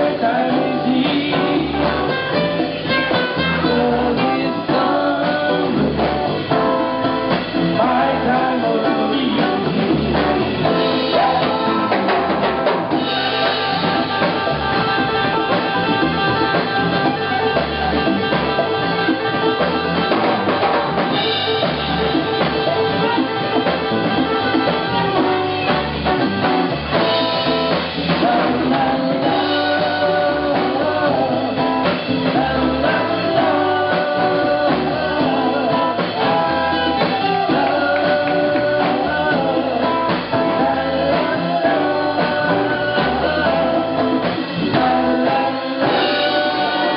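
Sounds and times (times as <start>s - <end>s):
man singing: 0.0s - 21.2s, 27.3s - 46.9s
bass: 0.0s - 46.9s
drum kit: 0.0s - 46.9s
hand drums: 0.0s - 46.9s.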